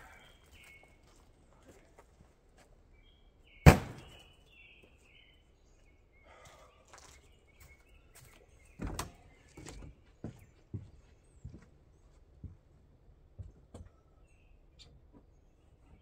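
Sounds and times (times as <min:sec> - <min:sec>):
birds chirping: 0:00.0 - 0:16.0
sharp thunk: 0:03.6 - 0:04.2.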